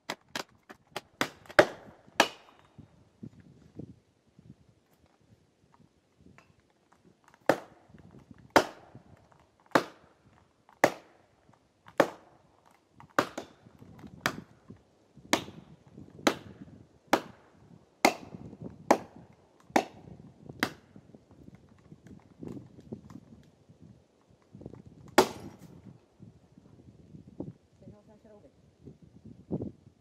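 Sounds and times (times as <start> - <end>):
axe chopping tree: 0.1 - 2.8, 7.3 - 10.2, 10.8 - 11.2, 11.9 - 14.6, 15.3 - 21.0, 25.0 - 25.8.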